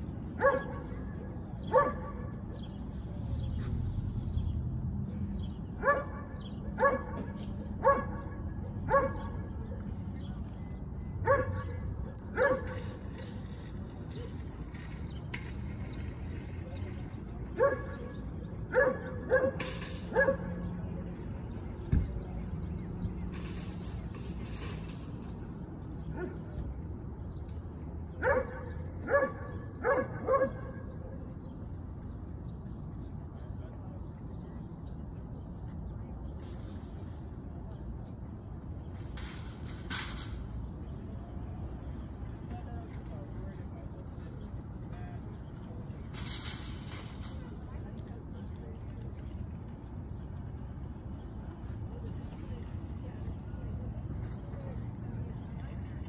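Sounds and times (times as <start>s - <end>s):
dog yipping barks: 0.4s - 1.0s, 1.7s - 2.3s, 5.8s - 9.4s, 11.2s - 11.8s, 12.4s - 12.9s, 17.6s - 18.1s, 18.7s - 20.6s, 28.2s - 30.8s.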